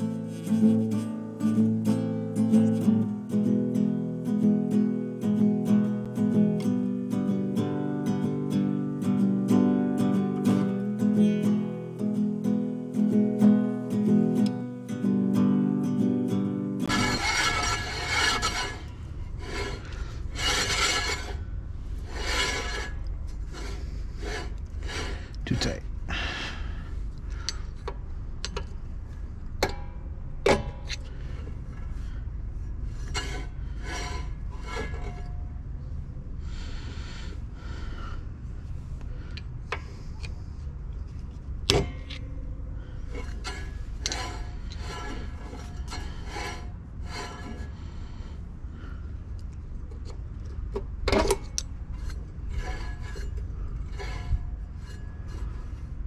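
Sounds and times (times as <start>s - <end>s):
brake drum scraping: 16.8s - 25.3s, 42.8s - 49.0s, 50.0s - 56.0s.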